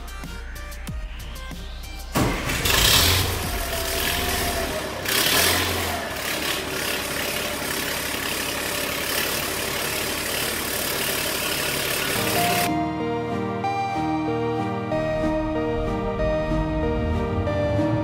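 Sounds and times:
diesel truck engine idling: 0:02.2 - 0:12.7.

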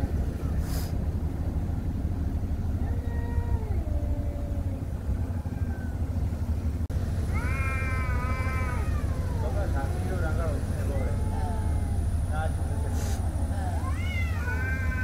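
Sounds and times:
steady low rumble: 0:00.0 - 0:15.0
cats yowling: 0:02.8 - 0:06.4, 0:07.2 - 0:15.0.

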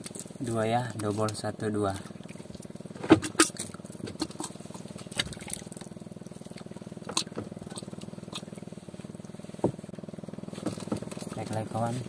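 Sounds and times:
small engine idling: 0:00.0 - 0:12.0
clicks and knocks of fishing gear: 0:10.6 - 0:11.6.

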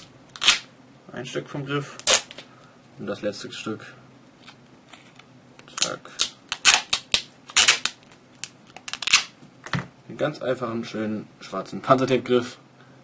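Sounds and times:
duct tape ripping off roll: 0:00.0 - 0:00.7, 0:02.0 - 0:02.4, 0:05.7 - 0:09.4.

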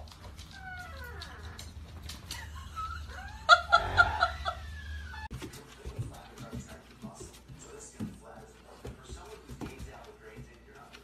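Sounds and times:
dog whining: 0:00.2 - 0:05.3.

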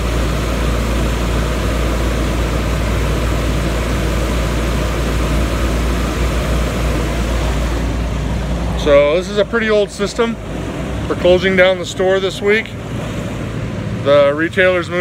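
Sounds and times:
low fan hum: 0:00.0 - 0:15.0.

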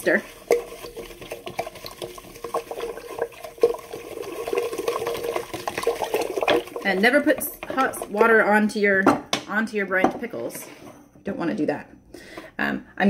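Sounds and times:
spoon scraping glass jar: 0:00.0 - 0:08.3
water swishing: 0:00.0 - 0:08.3.

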